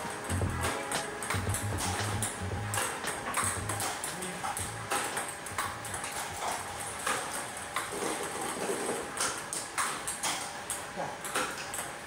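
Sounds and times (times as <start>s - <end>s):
ping pong ball knocking: 0.0s - 6.2s.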